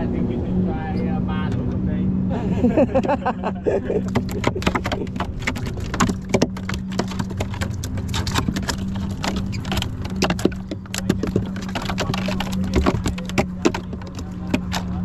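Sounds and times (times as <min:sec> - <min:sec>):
steady low hum: 0:00.0 - 0:15.0
knocks and clicks in plastic cooler: 0:04.0 - 0:15.0.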